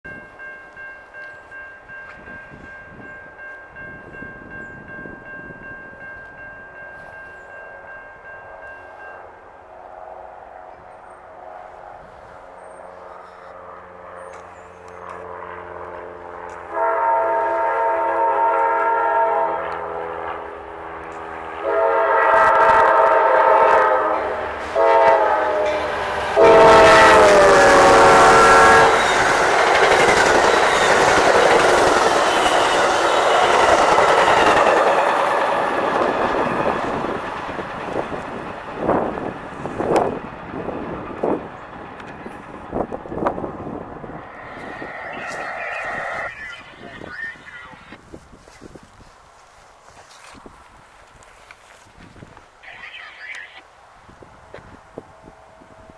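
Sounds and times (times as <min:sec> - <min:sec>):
train cars rumbling over rails: 0:14.4 - 0:48.6
train horn blasts: 0:16.4 - 0:20.6, 0:21.5 - 0:29.5.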